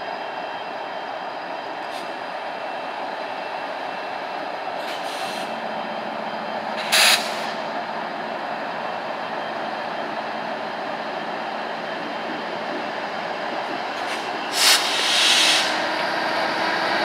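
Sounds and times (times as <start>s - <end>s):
train cars rolling on rails: 0.0s - 17.0s.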